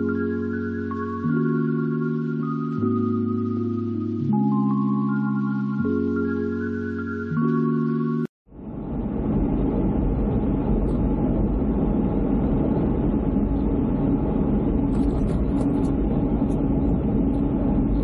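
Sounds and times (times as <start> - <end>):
road and tyre rumble: 8.5 - 18.0.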